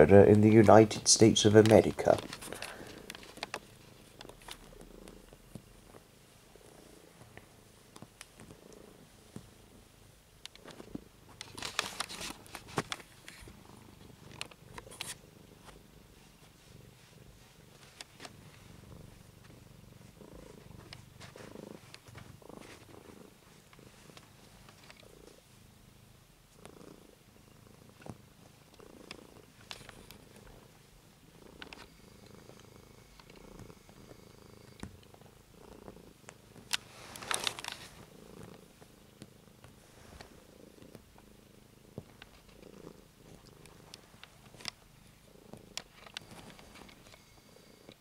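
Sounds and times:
cat purring: 0:00.0 - 0:48.0
rustle: 0:36.4 - 0:47.2.

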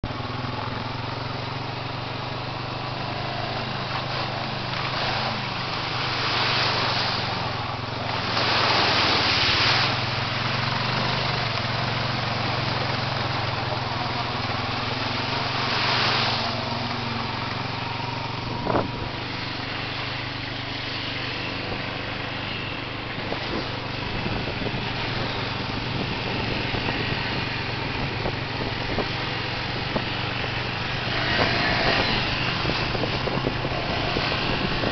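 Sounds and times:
quad engine running: 0:00.0 - 0:34.9.

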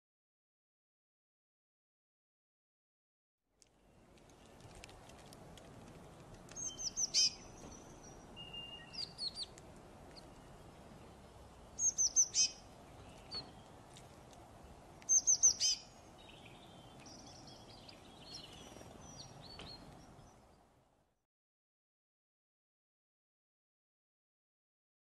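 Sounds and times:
soft bird chirps: 0:06.5 - 0:20.7.

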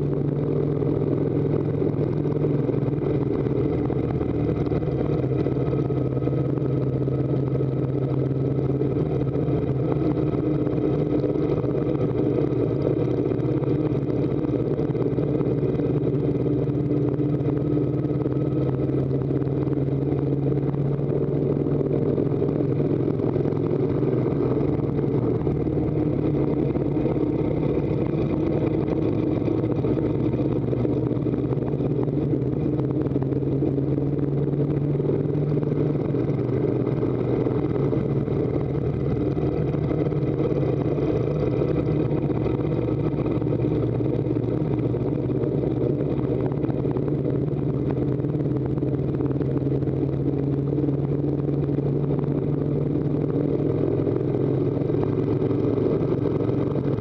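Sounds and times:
motorcycle engine under load: 0:00.0 - 0:57.0.

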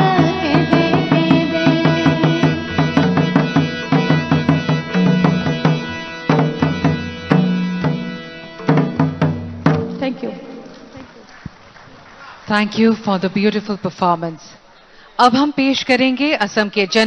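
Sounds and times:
hand drums beating: 0:00.0 - 0:11.1
harmonium sustained notes: 0:00.0 - 0:11.3.

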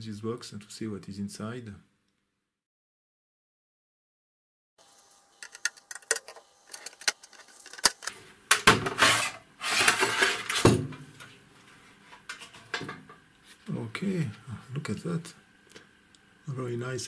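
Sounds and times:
metal cover scraping: 0:05.4 - 0:11.3.

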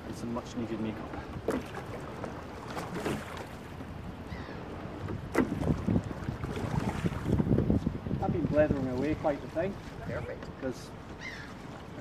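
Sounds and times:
water moving along hull: 0:00.0 - 0:12.0
oar strokes: 0:00.6 - 0:12.0.

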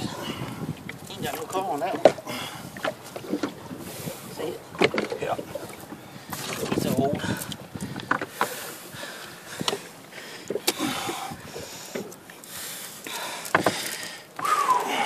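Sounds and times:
hands handling cord on boat deck: 0:04.4 - 0:08.6, 0:09.5 - 0:10.8, 0:11.5 - 0:14.9.

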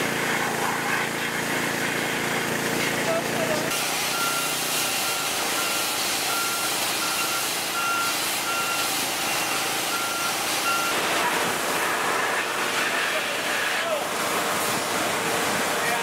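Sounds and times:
vehicle backup alarm beeps: 0:04.0 - 0:11.1.

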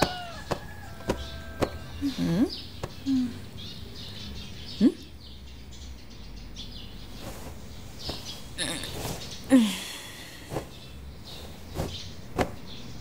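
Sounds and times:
small birds chirping: 0:00.0 - 0:13.0
brief rustling: 0:07.1 - 0:09.5, 0:10.3 - 0:12.6.

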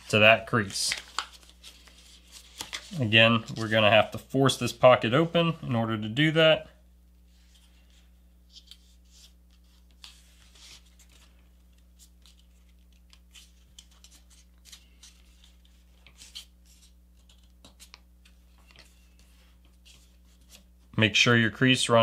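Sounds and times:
paper crinkling and rustling: 0:00.0 - 0:04.0.

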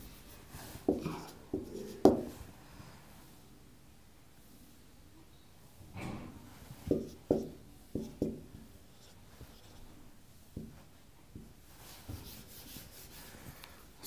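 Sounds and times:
marker pen writing on whiteboard: 0:00.1 - 0:02.4, 0:06.8 - 0:10.0.

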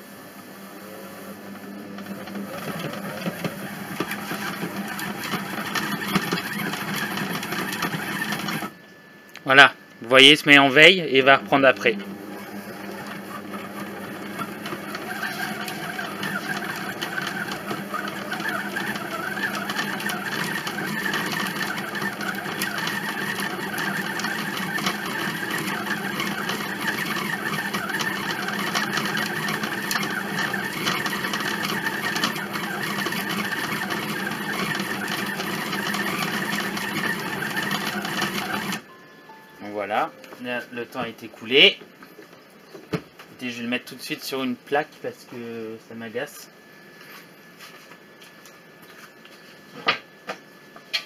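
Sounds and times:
kitchen machine motor kneading dough: 0:00.5 - 0:08.8, 0:10.4 - 0:38.9.

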